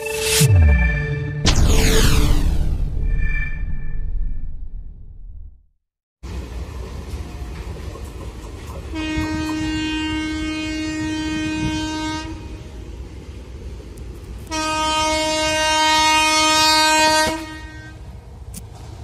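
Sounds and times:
low rumble of train: 6.2 - 19.0
train horn blasts: 8.9 - 12.8, 14.4 - 18.2.

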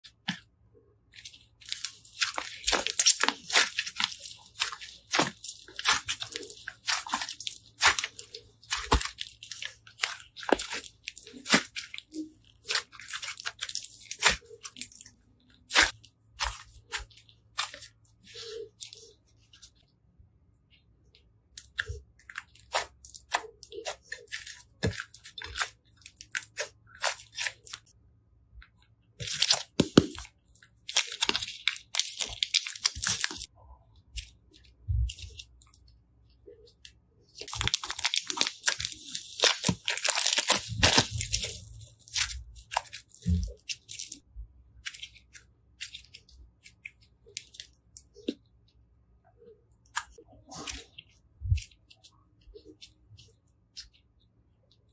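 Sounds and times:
slime crackling and popping: 1.2 - 19.1, 29.2 - 33.5, 37.3 - 44.2.

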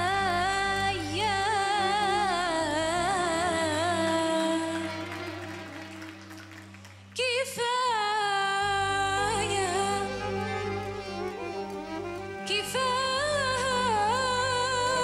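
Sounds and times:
woman singing ballad with vibrato: 0.0 - 5.8, 7.2 - 15.0
soft instrumental backing: 8.6 - 15.0.

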